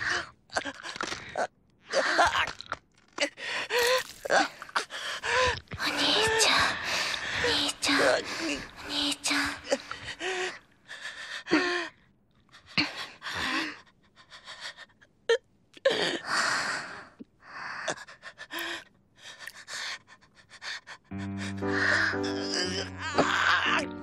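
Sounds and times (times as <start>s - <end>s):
person gasping and panting: 3.3s - 8.9s, 17.6s - 23.9s.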